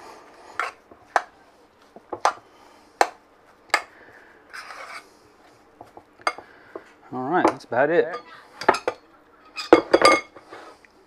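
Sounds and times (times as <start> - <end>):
utensil scraping glass bowl: 4.5 - 5.1.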